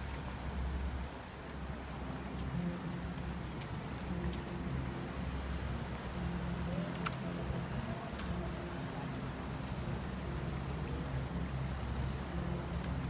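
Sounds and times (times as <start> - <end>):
low engine drone: 0.0 - 13.0
faint clicks: 6.7 - 8.7.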